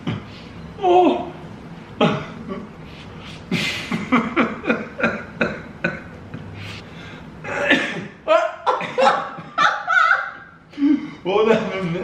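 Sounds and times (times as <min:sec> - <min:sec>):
man coughing and spluttering: 0:07.5 - 0:09.6.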